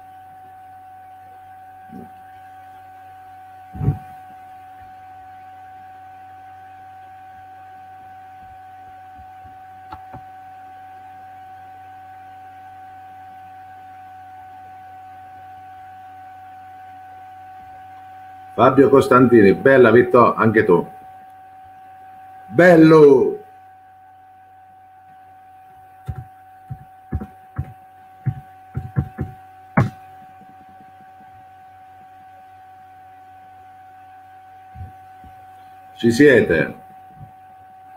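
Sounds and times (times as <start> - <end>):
low electrical hum: 0.0 - 37.9
steady electronic whine: 0.0 - 37.9
microphone handling knocks: 3.8 - 4.1, 26.1 - 31.3.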